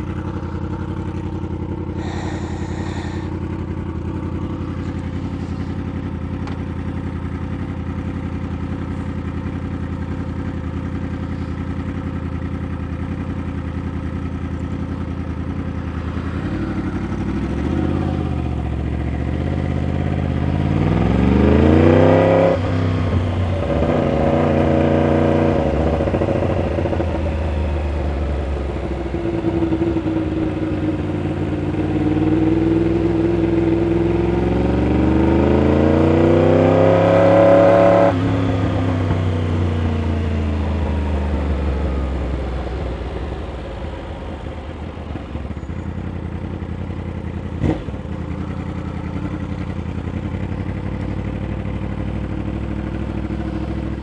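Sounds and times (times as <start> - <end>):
motorcycle engine idling: 0.0 - 54.0
motorcycle engine revving: 0.0 - 54.0.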